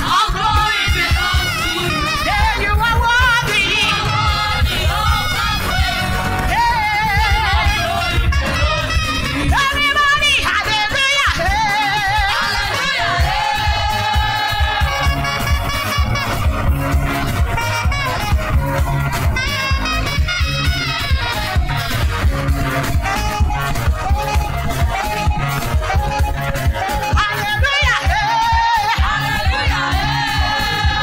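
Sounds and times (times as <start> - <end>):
choir singing gospel song: 0.0 - 16.4, 26.8 - 31.0
accompaniment with steady beat: 0.0 - 31.0.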